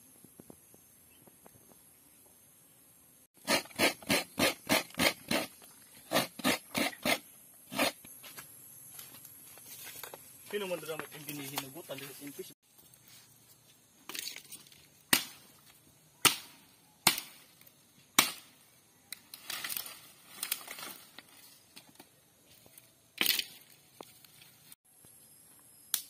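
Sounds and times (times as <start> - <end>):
dry branches cracking: 19.1 - 22.0, 23.2 - 24.3.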